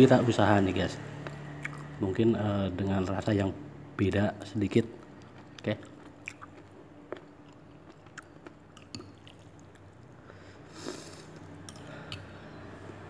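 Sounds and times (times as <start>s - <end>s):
faint chewing: 1.2s - 2.0s, 4.9s - 13.0s.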